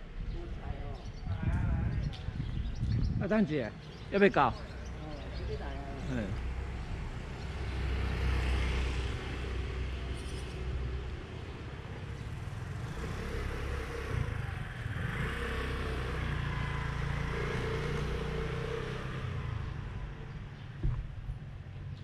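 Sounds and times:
street traffic hum: 0.0s - 22.0s
motor scooter passing: 4.3s - 20.4s
vehicle engine: 4.5s - 21.9s.

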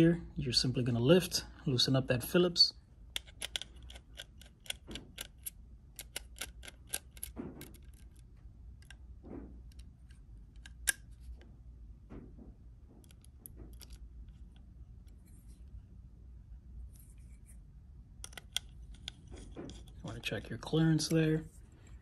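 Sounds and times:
screwdriver metal ticks: 3.2s - 8.1s.

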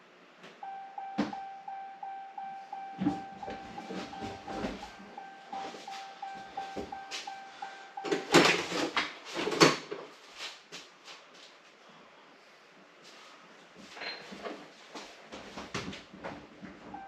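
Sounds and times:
electronic warning chime beeping: 0.6s - 8.4s.

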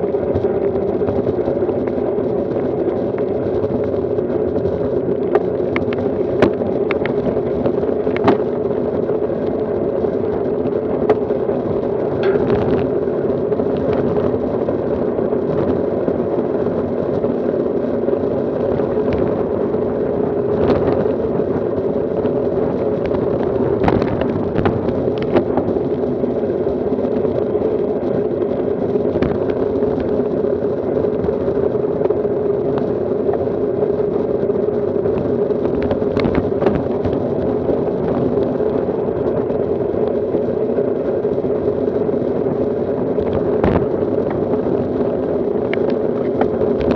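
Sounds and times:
bike tyres on rough asphalt: 0.0s - 46.9s
wind on microphone: 0.0s - 46.9s
sharp clicks and knocks: 12.2s - 12.9s.

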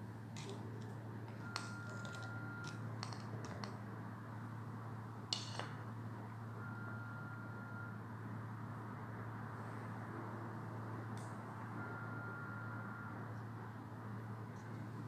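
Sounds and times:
metal spoon clinking on ceramic plate: 5.4s - 5.7s.

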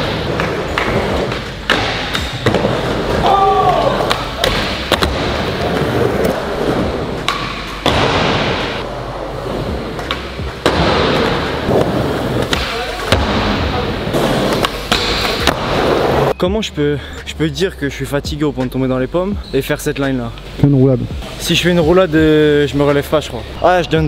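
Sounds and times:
skateboard wheels rolling on wood: 0.0s - 13.0s.

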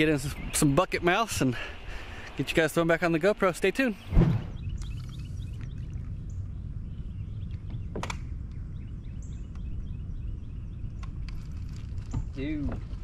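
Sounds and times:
faint bird chirps: 3.9s - 11.5s.

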